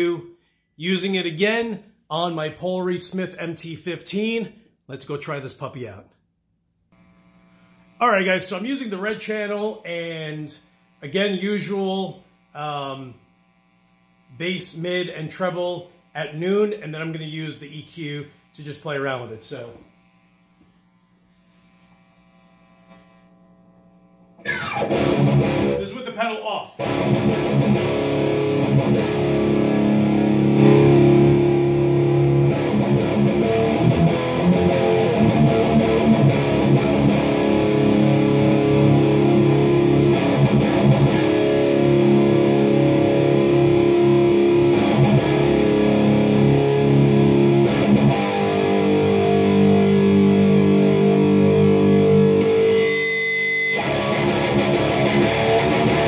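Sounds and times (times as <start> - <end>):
distorted electric guitar chords: 22.2 - 56.0.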